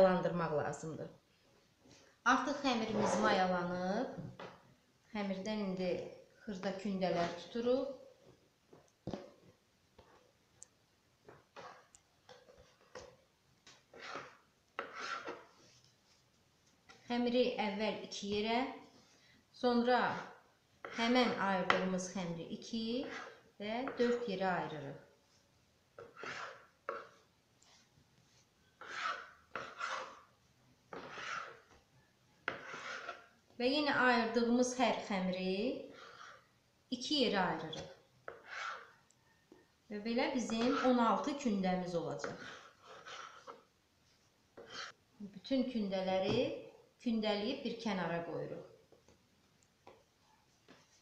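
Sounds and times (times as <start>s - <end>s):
knife scraping dough on board: 11.3s - 16.0s, 20.0s - 22.0s, 22.8s - 24.3s, 26.0s - 27.9s, 28.7s - 31.8s, 32.4s - 33.4s, 35.9s - 36.5s, 37.6s - 39.0s, 40.3s - 41.4s, 42.2s - 43.7s, 44.6s - 45.0s
soft taps and rustles: 49.8s - 51.0s.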